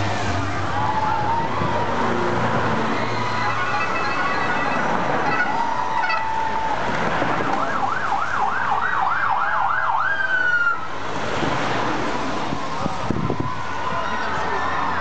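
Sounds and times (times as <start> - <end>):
vehicle siren yelping: 0.4 - 10.9.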